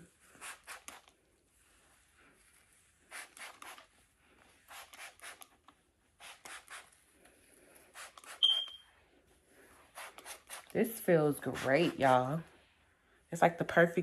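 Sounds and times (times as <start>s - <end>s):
spray bottle hissing sprays: 0.3s - 1.1s, 3.1s - 3.9s, 4.7s - 5.6s, 6.2s - 7.0s, 8.0s - 8.8s, 9.9s - 12.2s.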